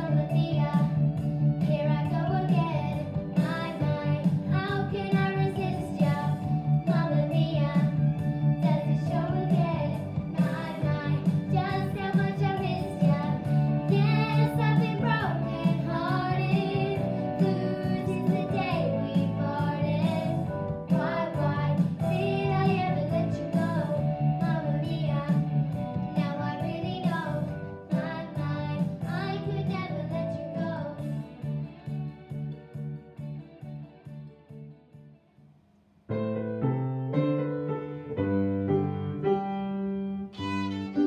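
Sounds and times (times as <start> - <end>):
backing track music: 0.0 - 41.0
girls singing a duet: 1.6 - 31.1.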